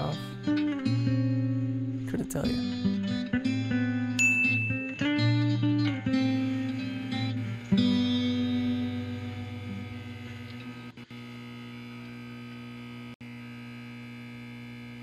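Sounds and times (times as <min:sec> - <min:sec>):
guitar chord ringing: 0:00.0 - 0:10.9.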